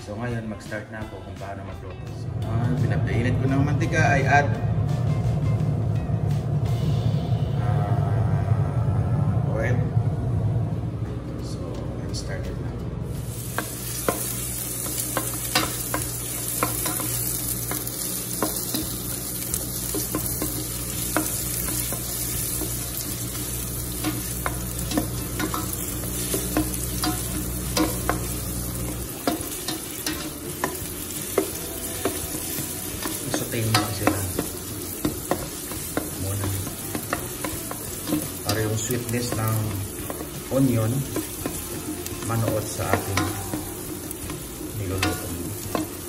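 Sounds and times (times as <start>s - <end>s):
low steady hum: 2.1s - 46.0s
onion sizzling in oil: 13.1s - 46.0s
spatula tapping pan: 13.5s - 46.0s.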